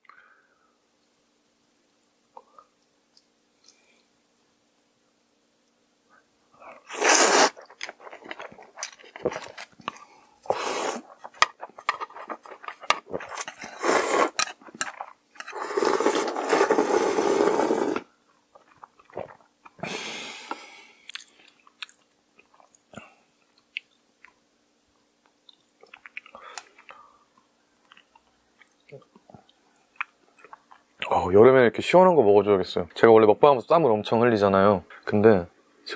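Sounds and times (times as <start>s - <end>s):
noodles being slurped: 6.8s - 18.1s
wet chewing: 7.1s - 13.6s.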